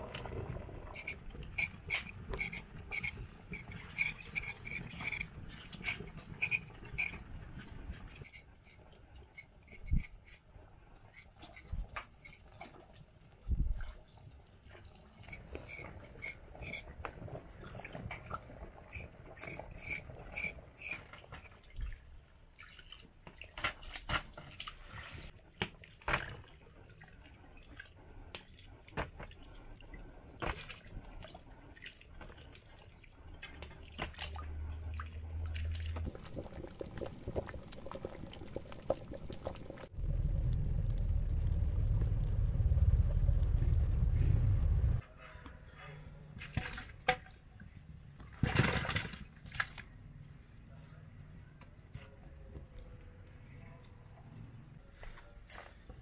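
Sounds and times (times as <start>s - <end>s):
knife scraping potato: 0.9s - 7.2s, 15.2s - 17.0s, 18.9s - 21.1s
steady low rumble: 36.1s - 45.0s.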